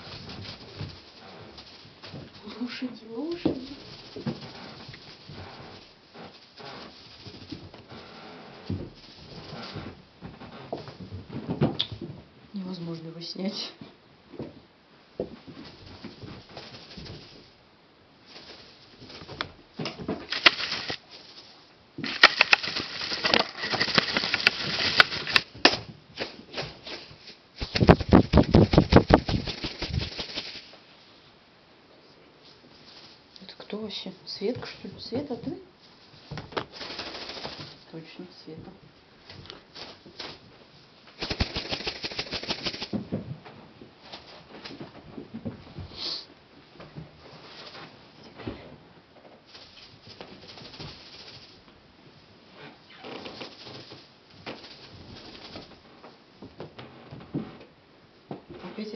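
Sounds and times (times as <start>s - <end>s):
kittens scratching and scrabbling: 0.0s - 12.2s, 15.3s - 17.6s, 18.2s - 30.8s, 32.4s - 33.8s, 34.5s - 38.0s, 39.2s - 43.1s, 47.0s - 48.4s, 49.2s - 57.7s.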